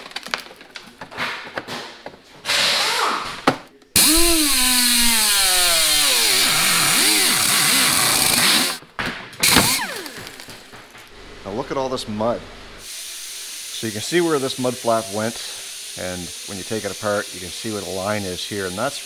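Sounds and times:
power tool hissing and whining: 4.0 - 8.8, 9.4 - 19.0.

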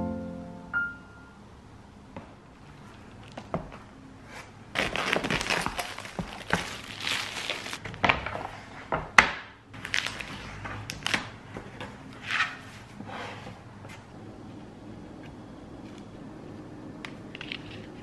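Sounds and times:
packaging crinkling and rustling: 4.7 - 8.6, 9.8 - 12.0.

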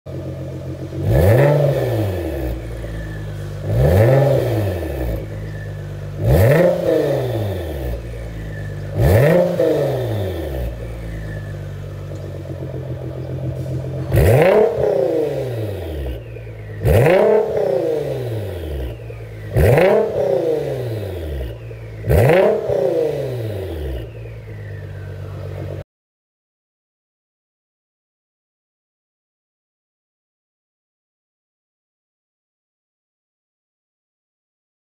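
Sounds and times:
car engine idling and revving: 0.1 - 25.8.

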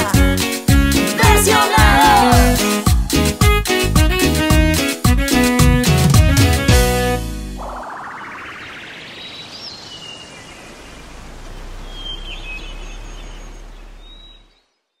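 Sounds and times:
rising whoosh: 7.4 - 9.4
bird chirps: 7.6 - 15.0
steady outdoor hiss: 8.9 - 14.6.

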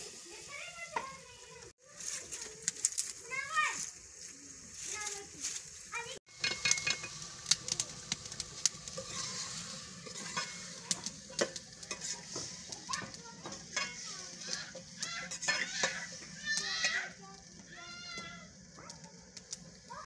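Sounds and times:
pot sizzling: 0.0 - 20.0
metal spoon scraping cooking pot: 6.3 - 7.3, 8.8 - 17.1
spoon clinking against pot: 6.4 - 7.2.

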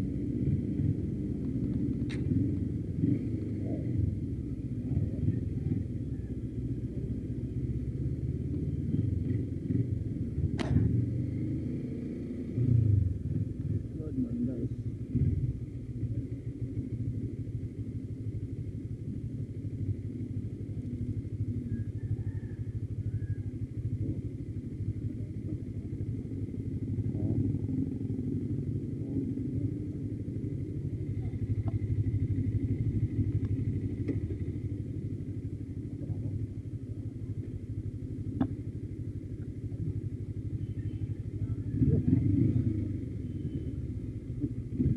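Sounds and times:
motorcycle engine idling: 0.0 - 44.9
sharp click: 10.6 - 10.9.

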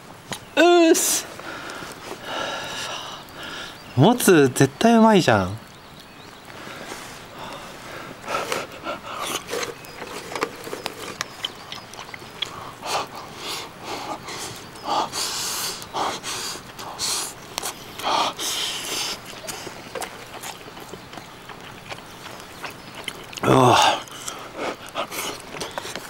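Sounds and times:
breaths through the nose: 1.3 - 3.9, 6.5 - 11.1, 12.4 - 20.5, 23.4 - 26.0
person chewing: 7.4 - 14.6, 15.7 - 26.0.

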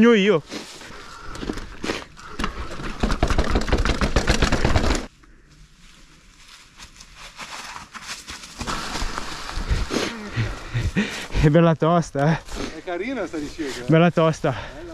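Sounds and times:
mountain bike rattling over rough ground: 2.3 - 5.1.

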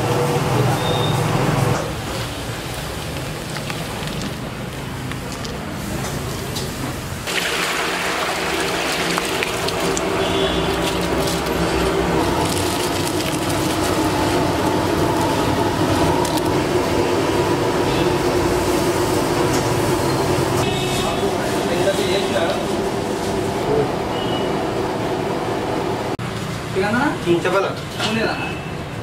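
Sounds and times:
water boiling and bubbling: 1.6 - 23.7
rice splashing into water: 7.3 - 10.9.

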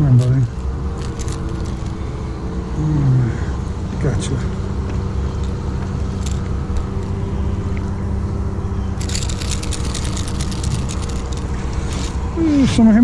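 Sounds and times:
rapid clicking and rattling: 0.0 - 2.0, 5.3 - 7.2, 9.0 - 12.2.

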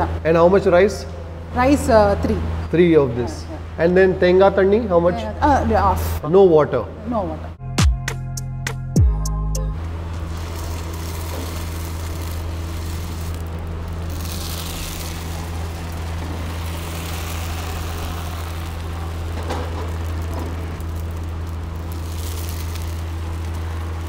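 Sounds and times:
low machine hum: 9.0 - 24.0.

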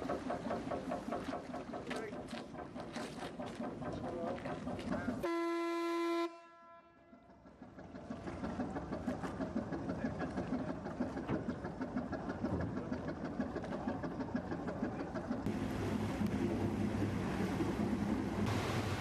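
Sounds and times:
boat engine running: 0.0 - 19.0
ship's whistle blast: 5.2 - 7.0.

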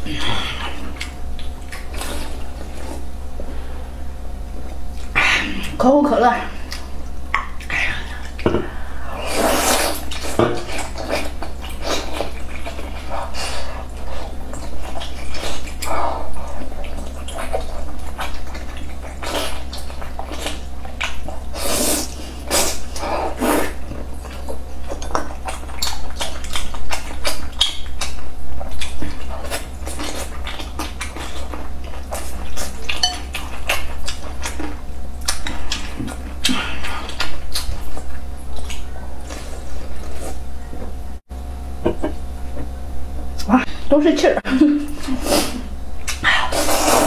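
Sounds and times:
steady low hum: 0.0 - 47.0
wet chewing and smacking: 0.5 - 3.2, 9.8 - 40.9.

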